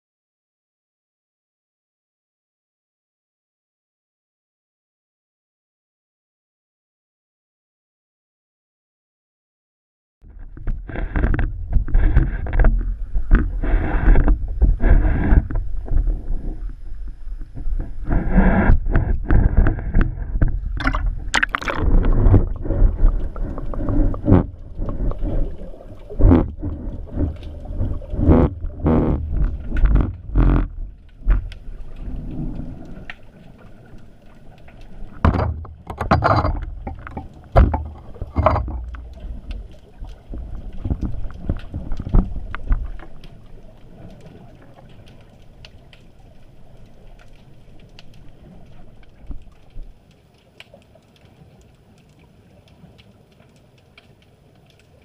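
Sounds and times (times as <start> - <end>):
water sloshing and splashing: 10.2 - 55.0
knocks and clicks: 35.2 - 39.3.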